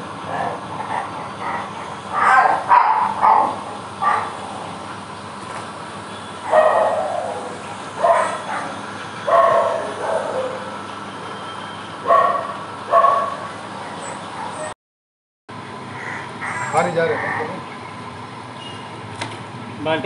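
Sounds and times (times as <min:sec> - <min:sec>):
dog barking: 0:00.3 - 0:04.5, 0:06.4 - 0:10.8, 0:12.0 - 0:13.5.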